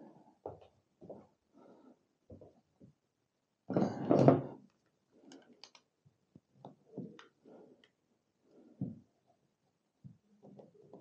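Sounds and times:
faint clicks and small knocks: 4.2s - 11.0s.

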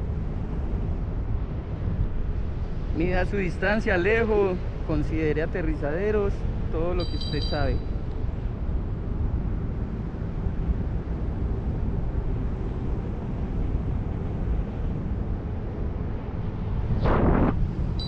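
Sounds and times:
wind buffeting microphone: 0.0s - 18.0s
wind whoosh: 7.9s - 18.0s.

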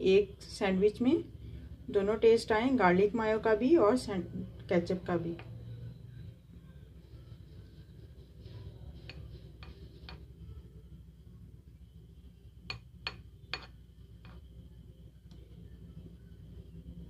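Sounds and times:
faint low hum: 0.0s - 17.0s
utensil clicking and tapping: 9.0s - 10.3s.

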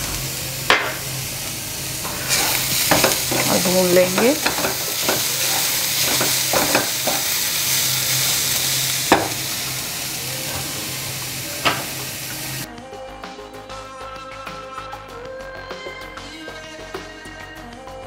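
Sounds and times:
vegetables sizzling in hot oil: 0.0s - 12.7s
background music: 0.0s - 18.0s
spatula knocking against pan: 4.1s - 5.4s, 6.0s - 7.3s, 9.1s - 9.4s.

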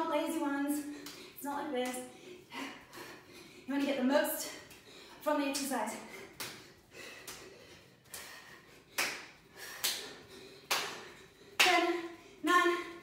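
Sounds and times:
sharp hand claps: 6.3s - 11.9s.

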